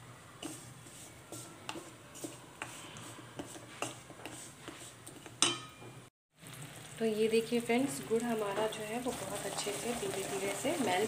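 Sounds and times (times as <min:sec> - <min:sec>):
spatula scraping and tapping pan: 0:00.4 - 0:06.0.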